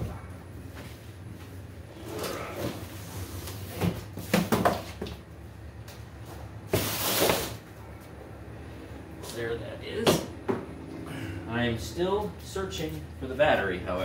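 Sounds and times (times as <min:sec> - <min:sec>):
cardboard knocking on concrete floor: 0:03.8 - 0:05.2
cardboard inserts rustling and scraping: 0:06.2 - 0:07.6.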